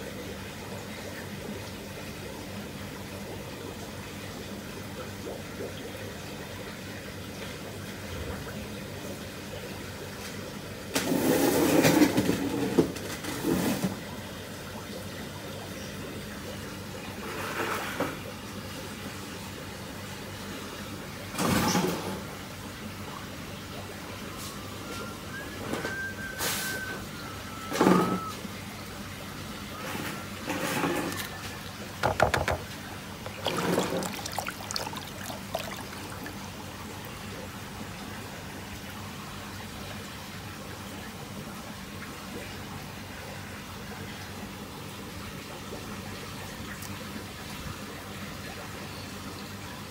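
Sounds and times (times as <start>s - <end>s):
water splashing and trickling: 25.9s - 49.6s
sharp knocks: 32.0s - 32.7s
water rushing and splashing: 32.0s - 38.4s.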